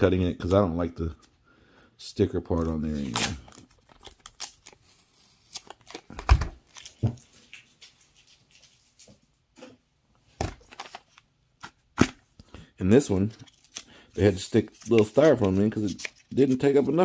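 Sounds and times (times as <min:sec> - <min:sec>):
tape peeling off plastic: 0:02.6 - 0:09.1.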